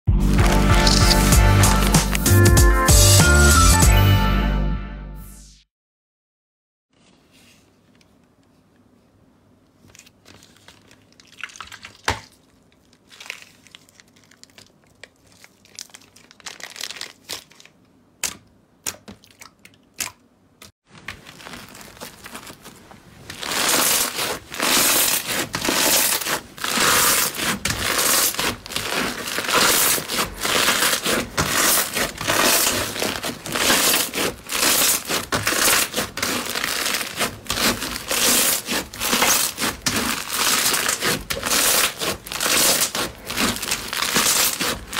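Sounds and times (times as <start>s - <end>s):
slime crackling crunch: 0.2s - 2.4s, 10.0s - 18.4s, 21.0s - 44.9s
plastic bag crinkling: 0.3s - 2.3s, 9.8s - 17.9s, 20.9s - 44.9s.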